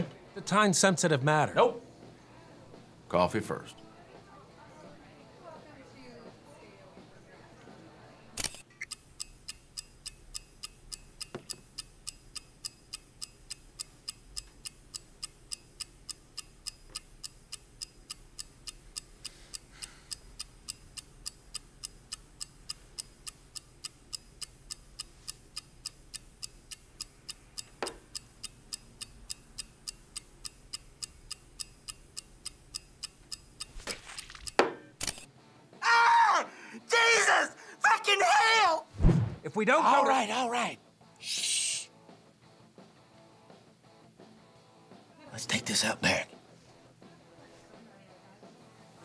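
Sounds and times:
clock ticking: 8.6 - 34.6.

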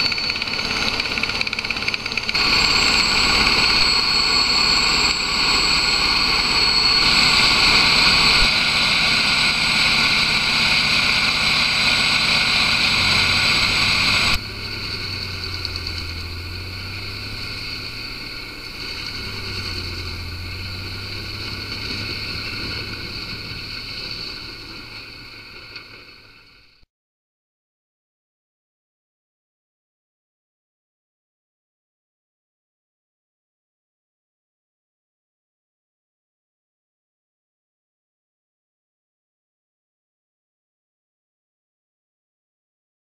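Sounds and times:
grinder droning: 0.0 - 26.4
high whine: 0.0 - 26.8.

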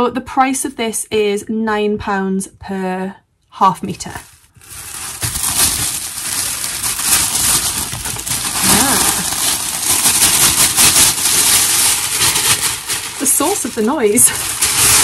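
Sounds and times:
tissue paper crinkling: 3.9 - 15.0.

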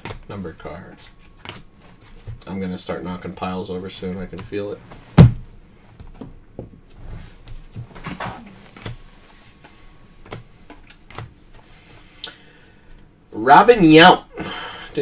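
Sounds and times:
trading cards being handled: 0.0 - 2.6
thump on a table: 5.2 - 5.4.

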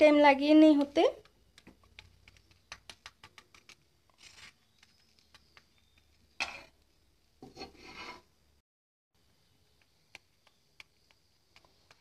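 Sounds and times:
metal spatula scraping griddle: 7.4 - 8.3.

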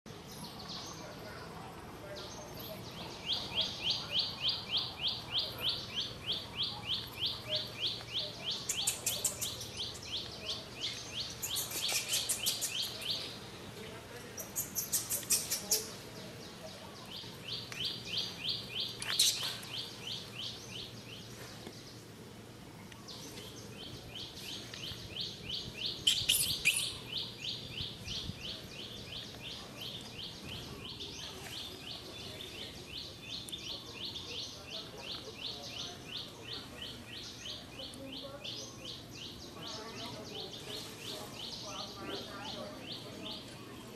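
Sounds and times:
high chirping: 2.9 - 13.4, 14.4 - 16.0, 23.1 - 41.9.

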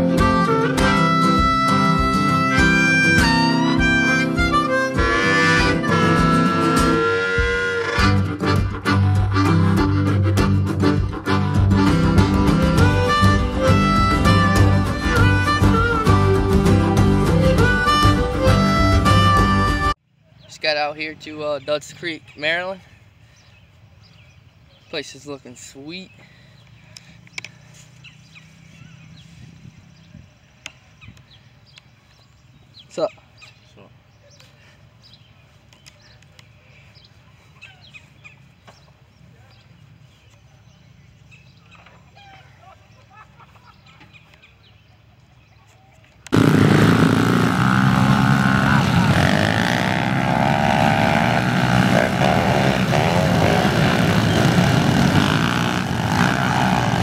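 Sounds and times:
small motorcycle engines buzzing: 46.3 - 57.0.

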